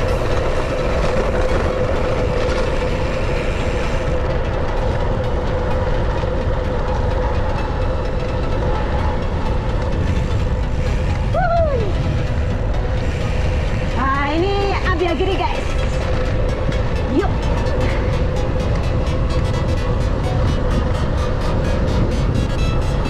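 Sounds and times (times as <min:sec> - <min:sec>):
bike tyres rolling on road: 0:00.0 - 0:23.0
steady whining tone: 0:00.0 - 0:23.0
wind rushing over microphone: 0:00.0 - 0:23.0.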